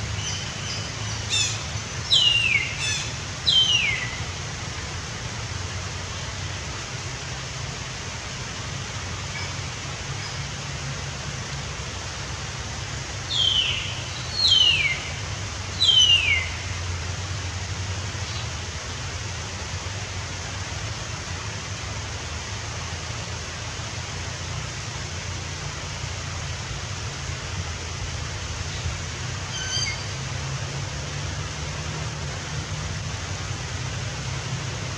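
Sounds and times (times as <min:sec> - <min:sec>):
background hiss: 0:00.0 - 0:34.9
bird whistled calls: 0:00.2 - 0:04.2, 0:13.3 - 0:15.1, 0:15.8 - 0:16.6, 0:29.5 - 0:30.1.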